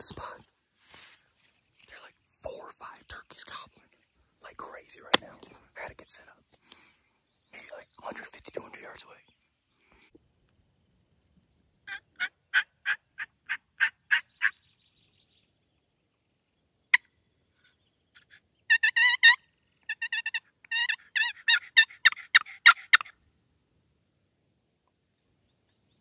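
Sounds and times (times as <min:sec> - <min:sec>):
turkey yelping: 0:11.9 - 0:14.5, 0:18.2 - 0:23.1.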